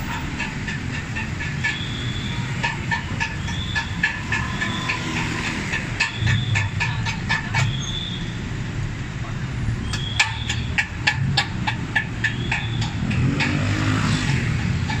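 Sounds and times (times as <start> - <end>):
sharp clicks and knocks: 0.0 - 8.1, 9.8 - 15.0
high-pitched squeals: 0.0 - 8.3
passing vehicle engines: 0.0 - 15.0.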